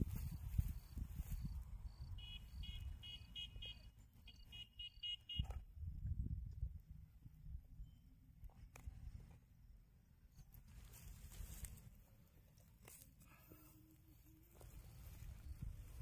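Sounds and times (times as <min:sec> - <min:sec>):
fish rustling on dry grass: 0:10.6 - 0:13.4.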